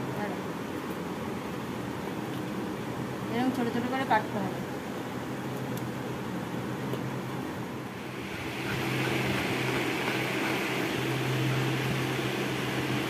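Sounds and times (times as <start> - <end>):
steady low hum: 0.0 - 13.0
broad hiss: 8.0 - 13.0.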